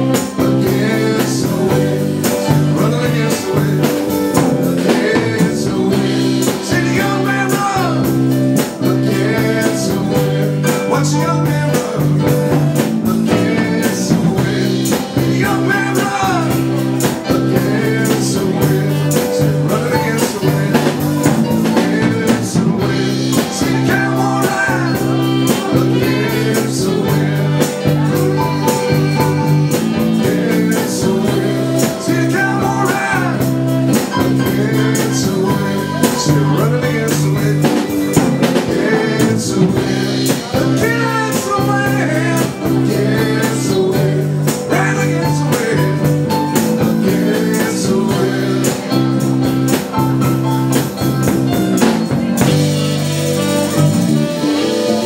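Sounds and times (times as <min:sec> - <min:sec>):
person singing: 0:00.0 - 0:55.0
rock band playing: 0:00.0 - 0:55.0.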